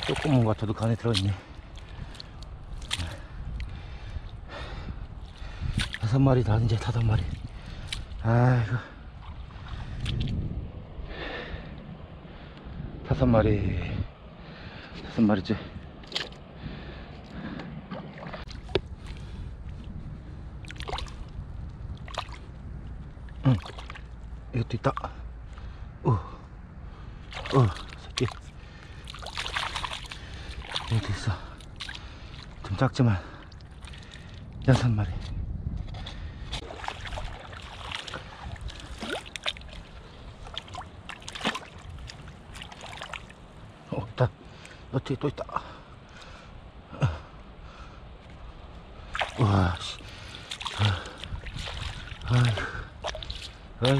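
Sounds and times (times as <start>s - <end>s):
boots squelching through mud: 0.0s - 3.3s, 29.0s - 32.6s, 35.9s - 43.5s, 49.1s - 53.9s
sharp splashes: 0.0s - 3.3s, 20.6s - 21.3s, 22.0s - 22.5s, 23.4s - 24.1s, 27.2s - 32.7s, 36.6s - 43.6s, 49.0s - 53.9s
boots sloshing through water: 0.0s - 10.4s, 15.8s - 22.6s, 23.2s - 24.4s, 27.2s - 35.0s, 35.8s - 43.9s, 47.8s - 53.9s
squelches in mud: 0.0s - 10.5s, 14.9s - 26.4s, 27.2s - 53.9s.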